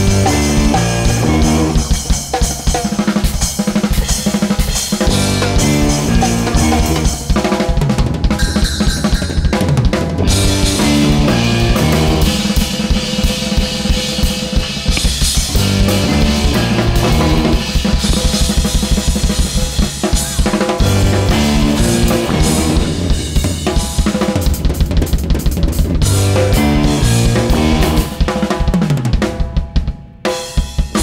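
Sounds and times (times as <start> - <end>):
bass line: 0.0 - 2.1, 5.0 - 12.8, 15.0 - 18.3, 20.8 - 23.9, 25.8 - 28.3
drum kit groove: 0.0 - 31.0.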